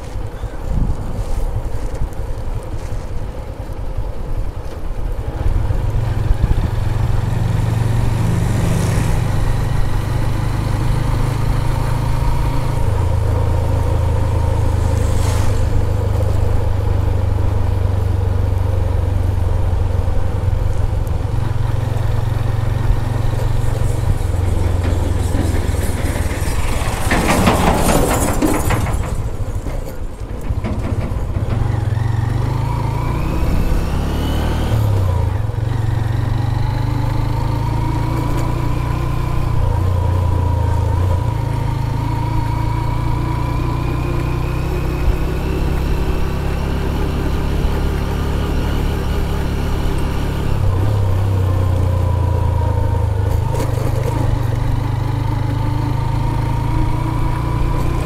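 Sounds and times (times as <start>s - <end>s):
motorcycle engine running: 0.0s - 58.0s
loud rush of noise: 12.0s - 17.5s.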